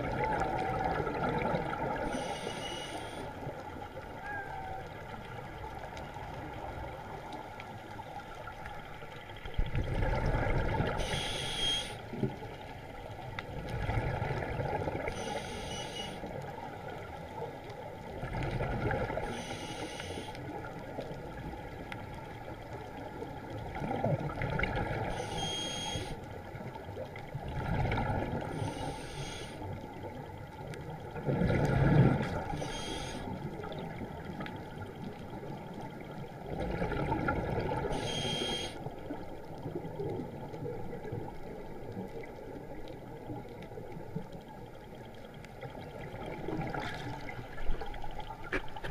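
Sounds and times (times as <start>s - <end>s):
watery background: 0.0s - 48.9s
diver breathing bubbles: 9.8s - 12.0s.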